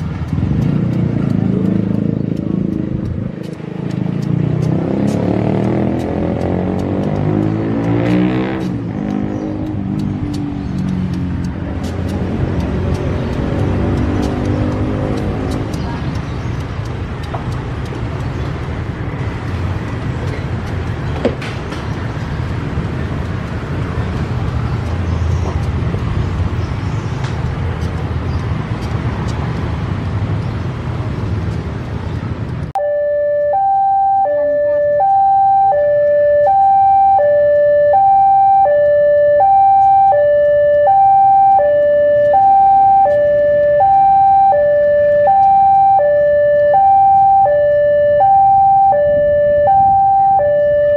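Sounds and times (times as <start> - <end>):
diesel locomotive engine rumbling: 0.0 - 50.9
level crossing warning alarm: 32.8 - 50.9.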